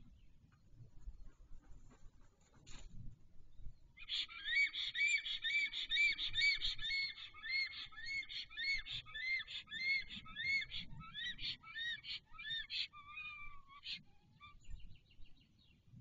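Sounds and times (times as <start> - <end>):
stork whistled calls: 4.1 - 14.0.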